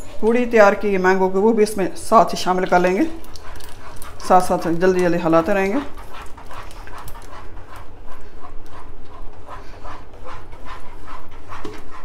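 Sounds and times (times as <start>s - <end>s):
spatula swishing and scraping wok: 7.3s - 12.0s.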